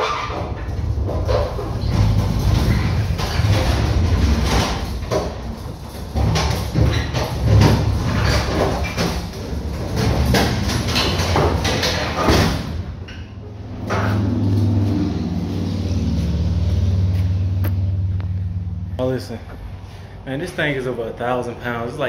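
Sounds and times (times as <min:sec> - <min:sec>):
pallet jack rolling on wooden floor: 0:00.0 - 0:12.8
low rumble: 0:12.7 - 0:20.2.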